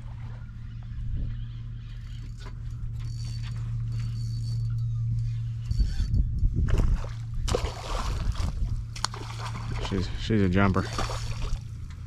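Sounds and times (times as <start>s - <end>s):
steady low hum: 0.0s - 12.0s
fishing reel gear whir: 0.2s - 11.8s.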